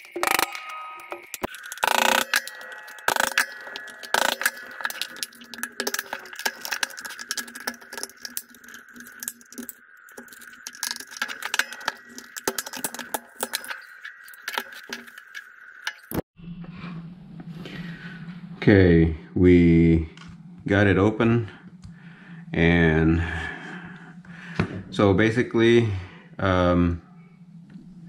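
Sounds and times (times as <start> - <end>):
plastic housing cracking and scraping: 0.0 - 16.2.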